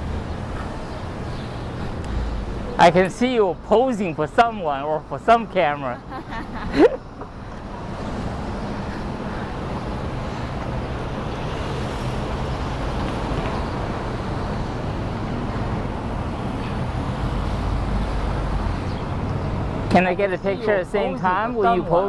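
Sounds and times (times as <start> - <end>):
city street traffic: 0.0 - 22.0
motor vehicle running nearby: 6.7 - 19.9.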